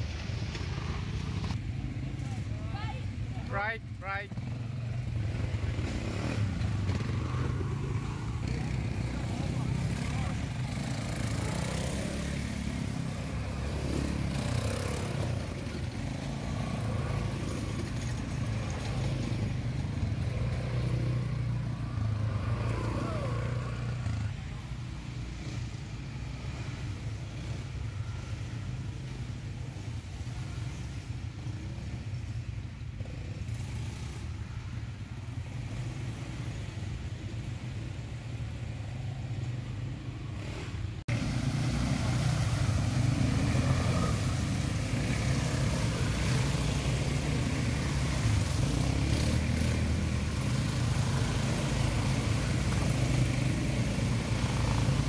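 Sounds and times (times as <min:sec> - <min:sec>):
quad bike engines: 0:00.0 - 0:55.0
water splashing: 0:41.1 - 0:55.0.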